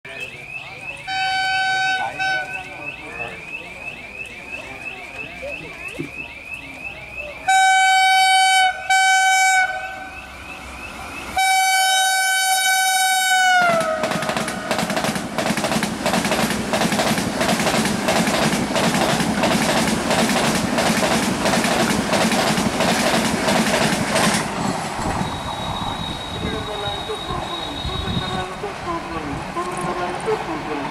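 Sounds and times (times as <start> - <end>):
train horn blasts: 1.1 - 2.6, 7.5 - 10.2, 11.4 - 14.3
train rushing past: 8.4 - 30.9
wheels clacking over rail joints: 13.7 - 25.0.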